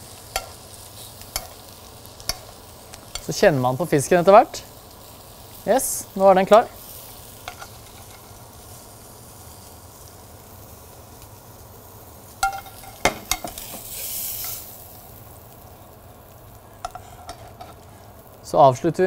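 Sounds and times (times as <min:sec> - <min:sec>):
fish sizzling in a frying pan: 0:00.0 - 0:19.0
utensils clinking against pan: 0:01.3 - 0:01.6, 0:07.4 - 0:08.3, 0:12.4 - 0:14.6.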